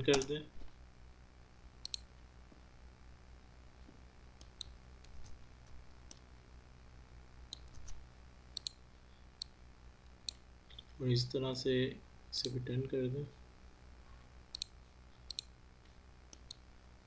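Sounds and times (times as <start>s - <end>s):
faint low hum: 0.0s - 17.0s
computer mouse clicking: 1.8s - 2.1s, 4.4s - 5.4s, 8.6s - 8.8s, 14.5s - 15.5s, 16.3s - 16.6s.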